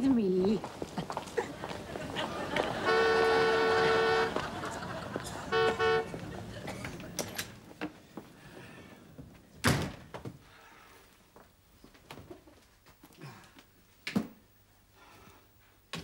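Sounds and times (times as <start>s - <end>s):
street traffic: 0.0s - 7.8s
car horn: 2.7s - 6.3s.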